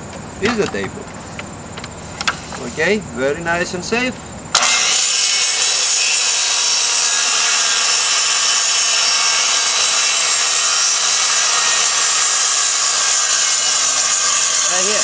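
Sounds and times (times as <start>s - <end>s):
circular saw cutting plywood: 4.6s - 15.0s.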